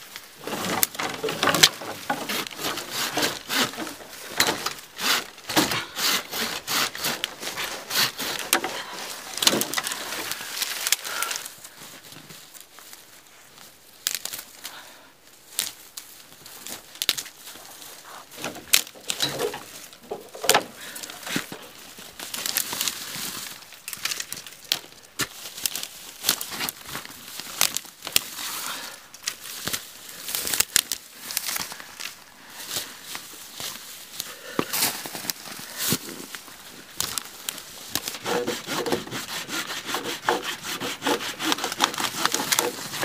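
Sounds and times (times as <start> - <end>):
dry grass rustling and snapping: 0.0 - 43.0.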